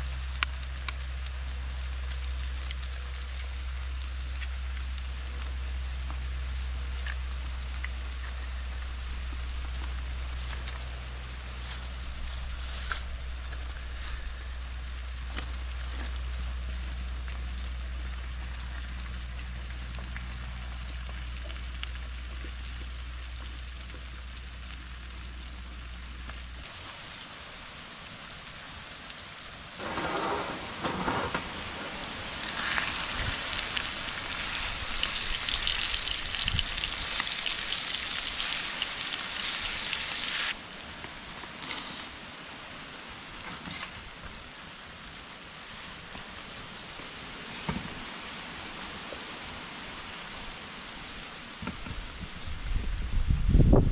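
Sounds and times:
eggs sizzling in a pan: 0.0 - 27.6, 28.2 - 40.6
low steady hum: 0.0 - 40.9
wooden spatula scraping a pan: 29.8 - 33.0.

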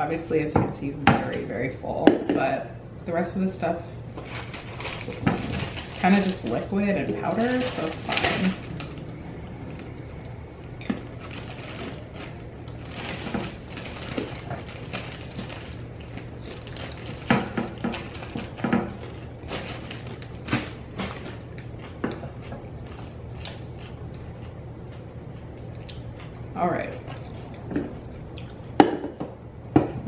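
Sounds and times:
plastic bag crinkling: 4.2 - 21.4.

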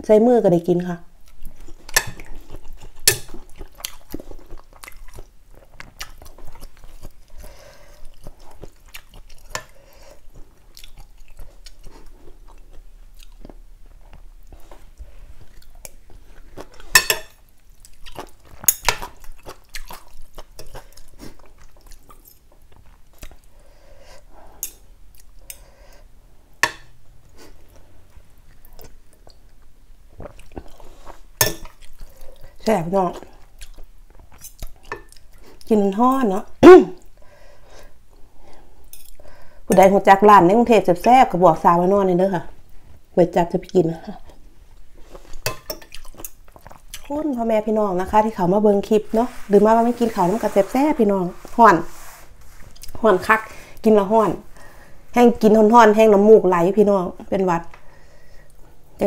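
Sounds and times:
chewing: 1.2 - 23.6, 28.5 - 35.7, 45.0 - 47.1.

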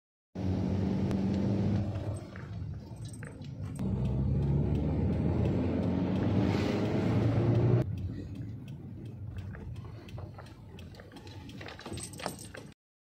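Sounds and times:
car engine and road noise: 0.4 - 12.8.

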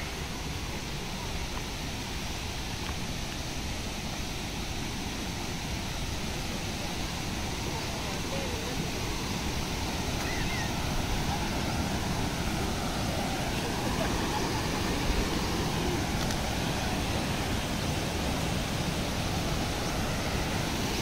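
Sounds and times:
water rushing down rocks: 0.0 - 21.0
faint distant voices: 6.1 - 21.0.

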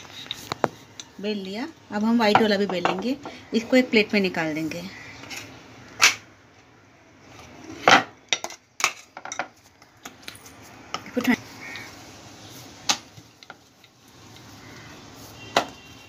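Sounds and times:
kitchenware knocking and clattering: 2.3 - 3.3, 7.8 - 9.6.

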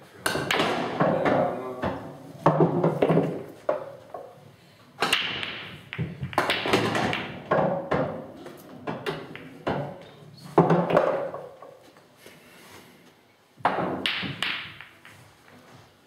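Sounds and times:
pool balls clacking: 0.2 - 4.4, 5.0 - 11.9, 13.6 - 15.7
pool balls rolling: 0.4 - 4.4, 5.0 - 11.9.

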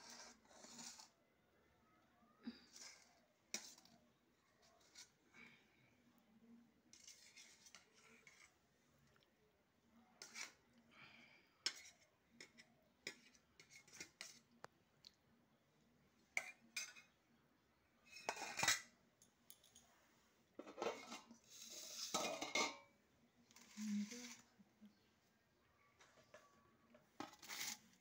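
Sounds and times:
steel lid scraping over pot: 20.6 - 22.9, 27.2 - 28.0.

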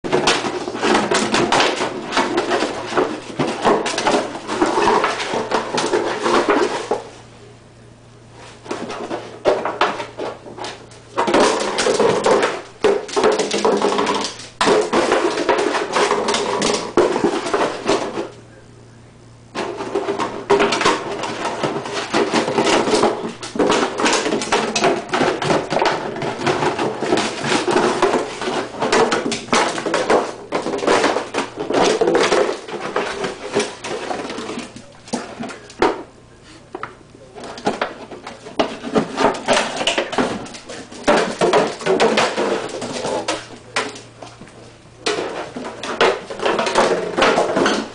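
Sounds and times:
plastic jug crackling and crinkling: 0.0 - 7.1, 19.5 - 36.1
plastic jug knocking on tile floor: 11.2 - 18.2.

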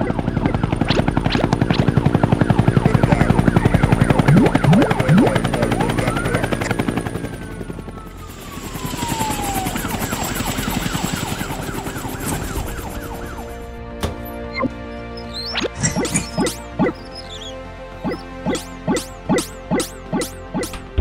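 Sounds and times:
cartoon helicopter rotor chop: 0.0 - 7.2, 8.4 - 13.5, 18.0 - 20.8.

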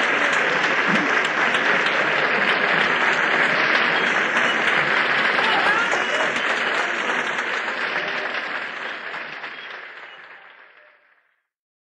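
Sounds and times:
audience applause: 0.0 - 11.4.

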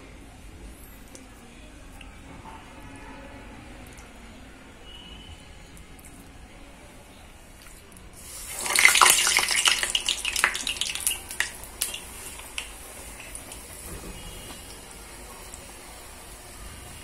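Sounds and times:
oil popping: 8.2 - 14.8
batter sizzling in hot oil: 8.2 - 17.0.

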